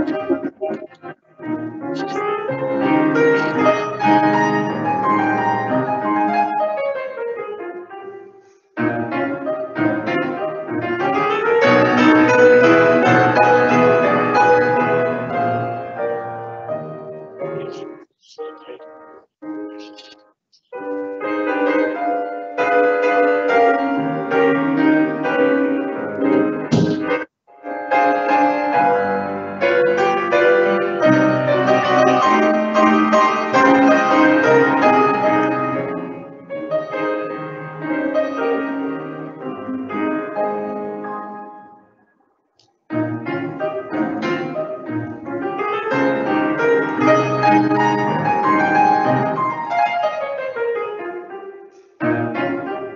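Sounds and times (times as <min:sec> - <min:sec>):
grand piano playing: 0:08.8 - 0:20.0, 0:20.8 - 0:41.8, 0:42.9 - 0:52.9.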